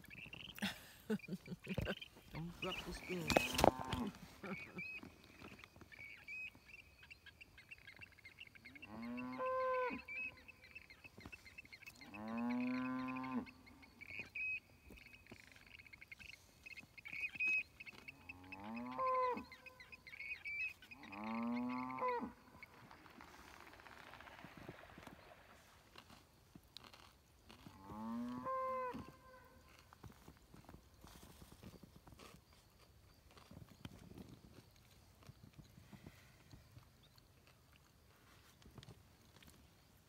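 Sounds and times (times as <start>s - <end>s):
cattle mooing: 12.1s - 13.5s, 18.2s - 19.4s, 21.0s - 22.4s.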